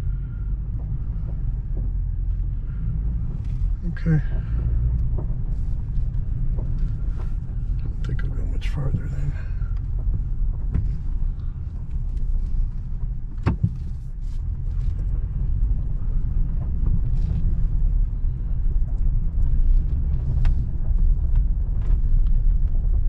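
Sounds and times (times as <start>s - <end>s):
truck rumbling on gravel: 0.0s - 23.0s.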